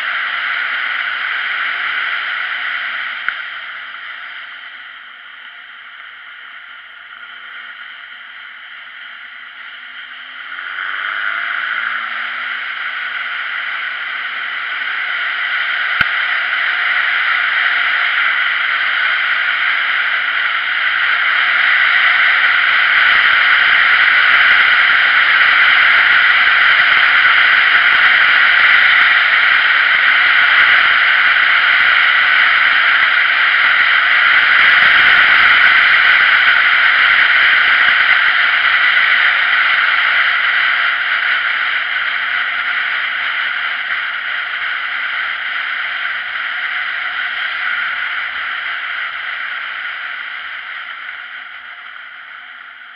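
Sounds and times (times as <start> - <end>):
wind rushing over microphone: 21.6 - 39.2.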